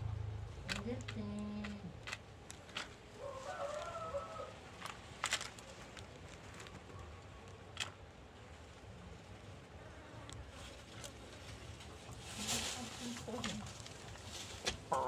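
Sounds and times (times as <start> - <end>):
hen pecking on concrete: 0.4 - 8.1.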